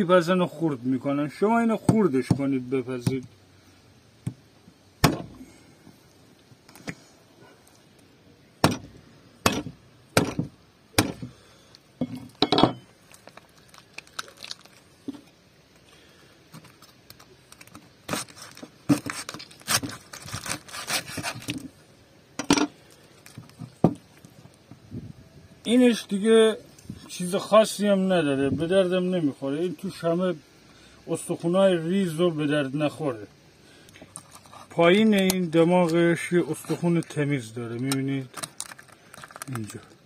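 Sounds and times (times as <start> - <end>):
crackling and tearing: 13.0 - 15.2, 16.5 - 21.8, 22.8 - 24.6, 34.0 - 40.0
bone cracking: 13.1 - 14.9.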